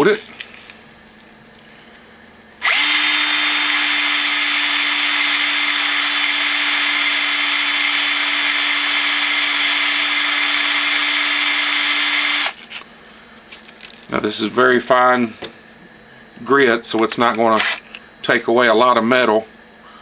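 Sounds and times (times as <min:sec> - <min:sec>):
cordless drill whining: 0:02.6 - 0:12.6, 0:17.6 - 0:17.8.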